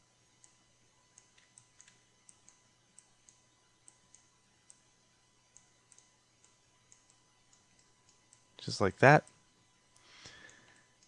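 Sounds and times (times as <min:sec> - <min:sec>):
low steady hum: 0:00.0 - 0:11.0
computer mouse clicks: 0:00.4 - 0:04.9, 0:05.5 - 0:08.5.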